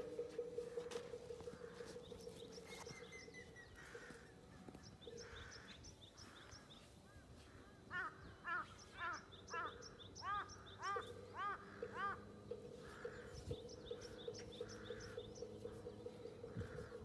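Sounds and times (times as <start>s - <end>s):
small birds chirping: 0.0s - 17.0s
crow cawing: 3.6s - 17.0s.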